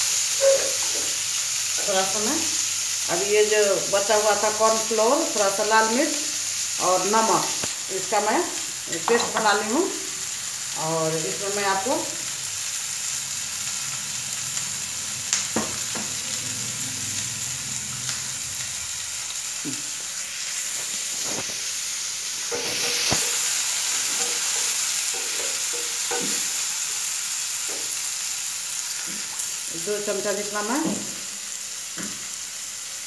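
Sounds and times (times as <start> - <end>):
vegetables sizzling in oil: 0.0 - 33.0
utensils clicking and knocking: 22.5 - 26.5.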